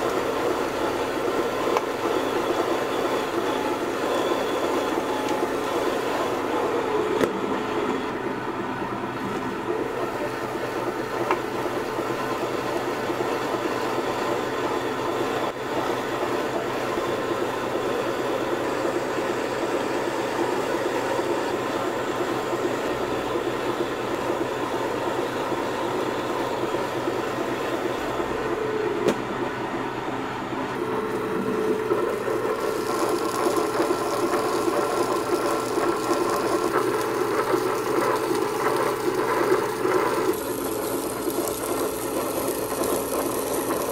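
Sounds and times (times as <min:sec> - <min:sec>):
stone grinder grinding: 0:30.9 - 0:43.9.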